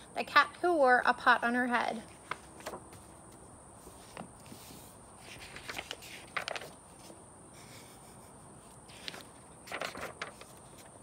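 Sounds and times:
faint clicks and rustles: 0:02.1 - 0:07.2, 0:08.7 - 0:11.0.

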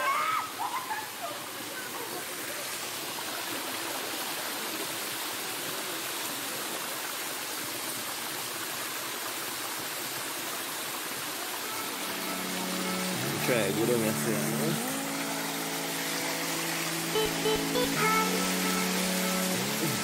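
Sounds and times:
stream rushing over stones: 0:00.0 - 0:20.0.

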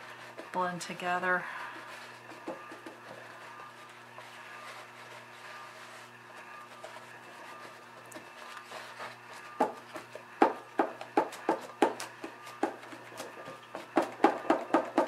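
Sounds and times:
paper towel tapping canvas: 0:09.6 - 0:15.0.

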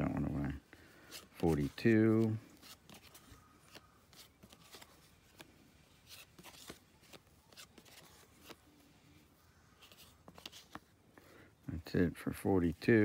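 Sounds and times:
cardboard cards rustling: 0:00.0 - 0:11.3.

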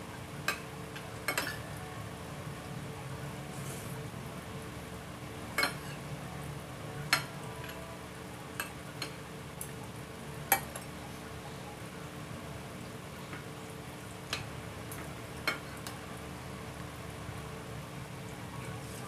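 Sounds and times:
cutlery clinking on a plate: 0:01.3 - 0:01.6, 0:05.6 - 0:06.0.

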